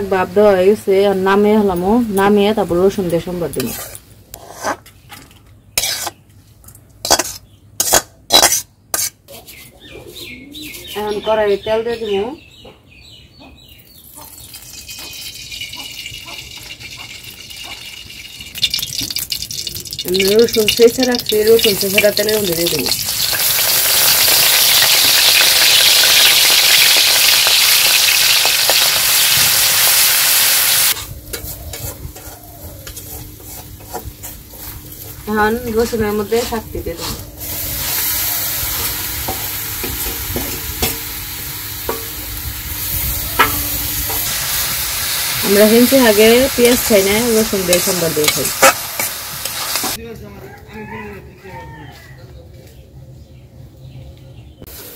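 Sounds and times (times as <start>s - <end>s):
utensil scraping and knocking pan: 3.5s - 6.2s, 7.0s - 9.2s, 31.3s - 35.2s
oil sizzling and crackling: 14.0s - 36.6s, 37.4s - 50.0s
oil pouring: 14.5s - 20.3s.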